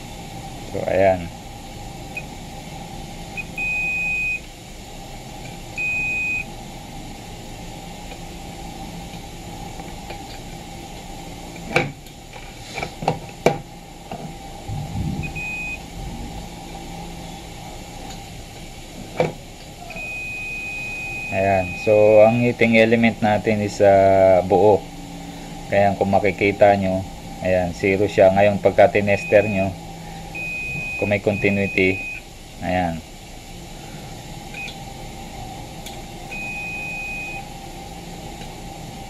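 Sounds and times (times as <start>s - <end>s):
multimeter short high beeps: 15.2s - 15.8s, 30.4s - 32.2s, 36.3s - 37.4s.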